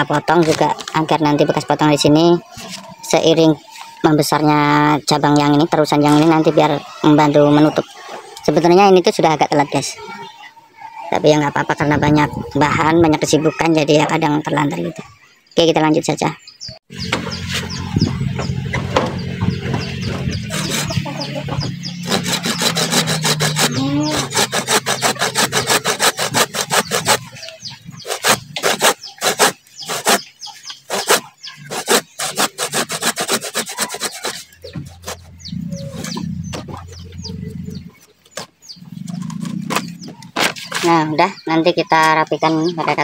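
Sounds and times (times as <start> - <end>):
hand saw cutting wood: 19.1 - 36.2.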